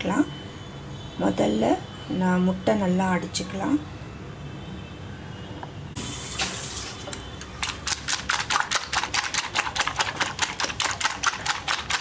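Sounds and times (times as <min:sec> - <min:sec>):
whisk clicking against bowl: 0:07.6 - 0:12.0.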